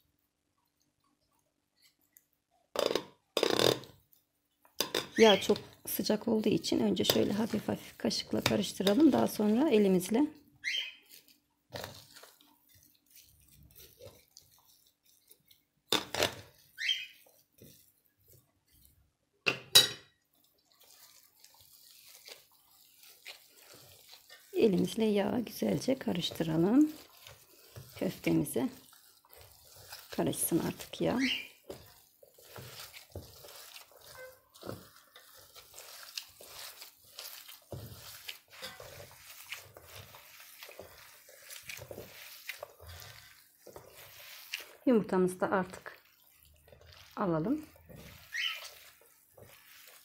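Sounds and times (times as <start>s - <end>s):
soft wet squishing of kneading: 0.0s - 50.0s
metal spoon scraping steel tray: 32.4s - 44.7s.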